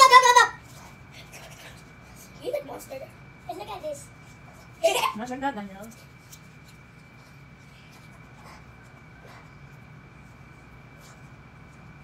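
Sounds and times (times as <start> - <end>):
room hum with high whine: 0.0 - 12.0.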